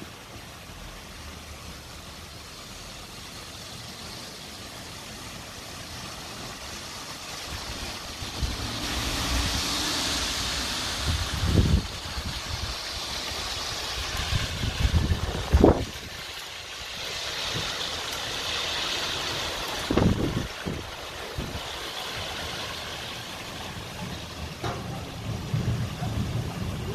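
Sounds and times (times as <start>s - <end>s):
heavy rain pouring: 0.0s - 26.9s
low thunder rumbles: 7.5s - 16.2s, 23.7s - 26.9s.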